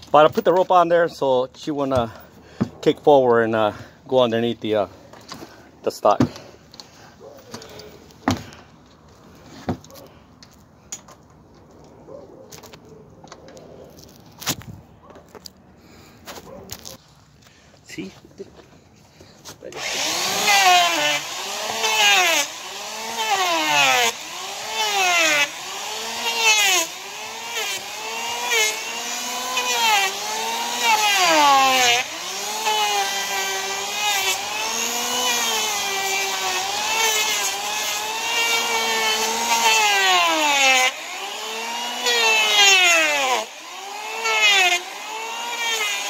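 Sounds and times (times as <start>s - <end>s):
electric planer motor whine: 19.8s - 46.0s.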